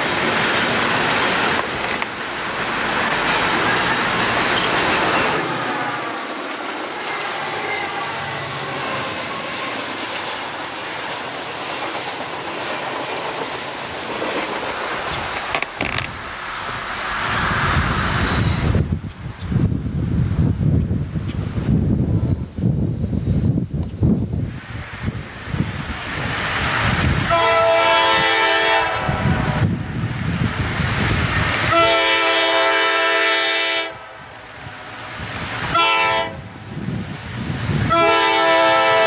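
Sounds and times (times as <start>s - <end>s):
train wheels on rails: 0.0s - 39.0s
low wind rumble on microphone: 14.7s - 33.0s, 34.0s - 39.0s.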